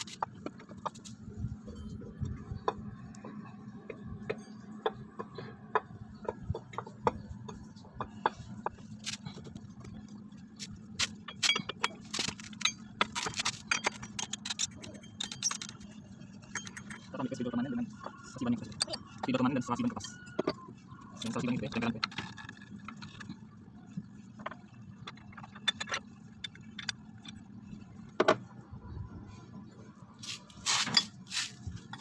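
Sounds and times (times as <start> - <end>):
metal tools clicking and clinking: 10.6 - 20.6.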